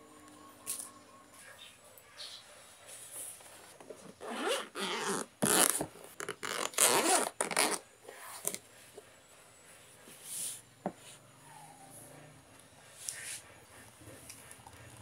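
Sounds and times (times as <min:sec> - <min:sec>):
zipper rasping open: 0:04.2 - 0:08.6.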